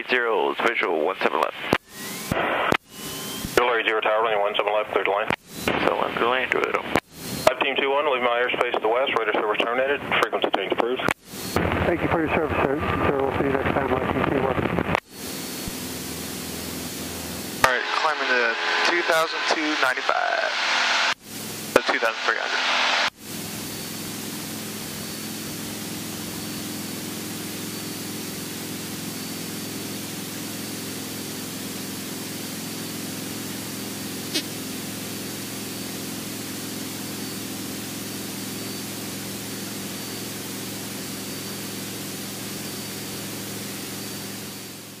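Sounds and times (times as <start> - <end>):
airplane piston engine drone: 1.7 - 3.6, 5.3 - 7.8, 11.0 - 14.4, 15.0 - 45.0
static hiss: 17.6 - 21.2, 21.8 - 23.1.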